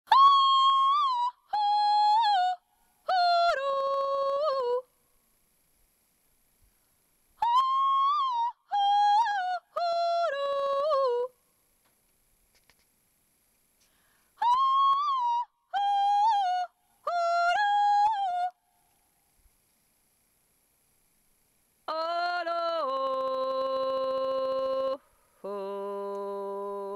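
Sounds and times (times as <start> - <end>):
high wordless yodel-like singing: 21.9 - 26.9.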